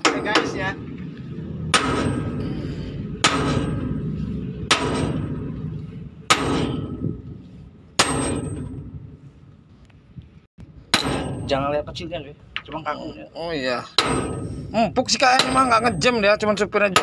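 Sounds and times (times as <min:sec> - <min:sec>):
steady low rumble: 0:00.0 - 0:13.4, 0:14.0 - 0:17.0
sledgehammer striking metal punch: 0:01.5 - 0:07.3, 0:07.9 - 0:09.2, 0:10.9 - 0:11.7, 0:13.9 - 0:16.2.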